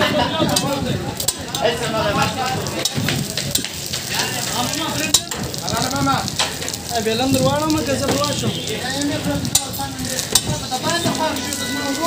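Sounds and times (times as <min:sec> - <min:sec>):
bread sizzling in oil: 0:00.0 - 0:12.0
metal tongs clicking on griddle: 0:00.5 - 0:01.7, 0:02.8 - 0:05.6, 0:09.5 - 0:10.9.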